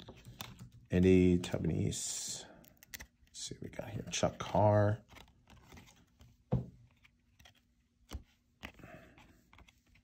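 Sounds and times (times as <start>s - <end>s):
cards clicking and tapping: 2.6s - 10.0s.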